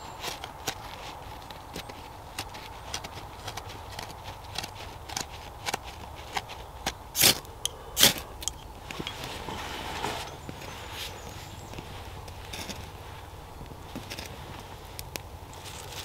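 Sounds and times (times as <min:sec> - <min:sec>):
dry tinder crackling from handling: 0:00.0 - 0:16.0
ferro rod scraping: 0:00.0 - 0:16.0.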